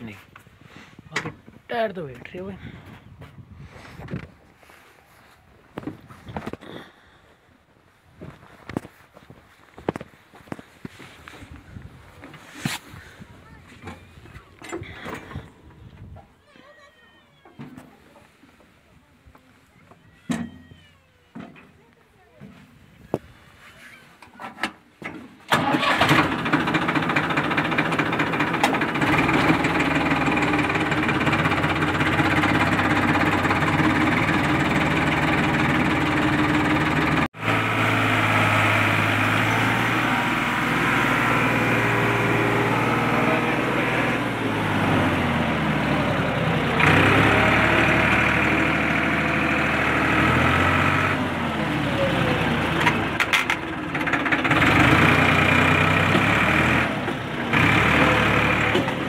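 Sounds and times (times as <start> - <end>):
tractor diesel engine starting: 12.4 - 15.7, 24.6 - 59.0.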